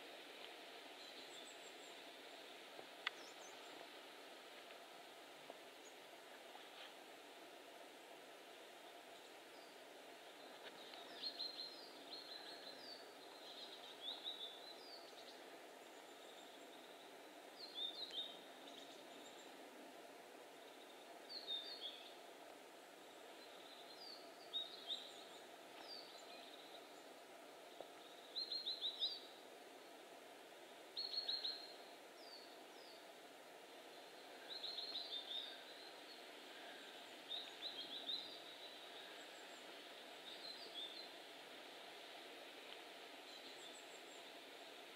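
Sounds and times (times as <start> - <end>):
faint forest ambience hiss: 0.0 - 44.9
songbird chirping: 0.0 - 44.9.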